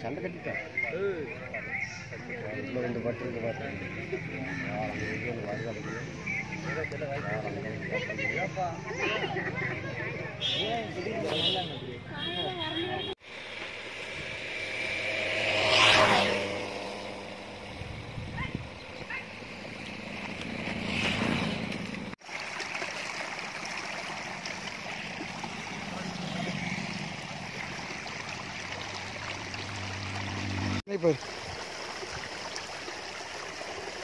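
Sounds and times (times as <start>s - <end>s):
whooshing swells: 13.3s - 22.1s
water trickling in a canal: 21.8s - 34.0s.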